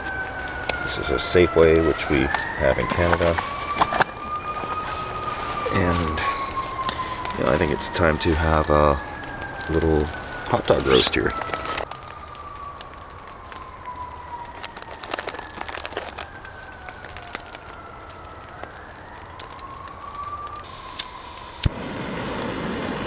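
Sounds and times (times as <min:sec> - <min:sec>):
distant siren wailing: 0:00.0 - 0:23.0
gas burner hissing: 0:20.6 - 0:23.0.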